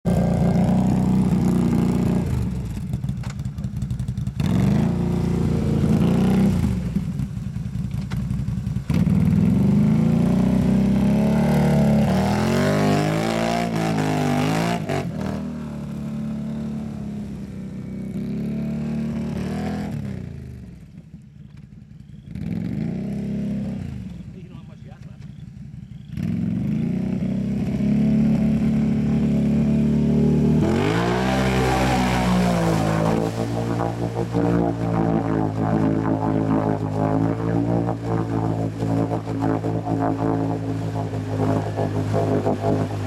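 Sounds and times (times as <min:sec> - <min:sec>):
tracks churning through mud and water: 0:00.1 - 0:16.2, 0:26.1 - 0:43.0
atv engine revving: 0:00.1 - 0:43.0.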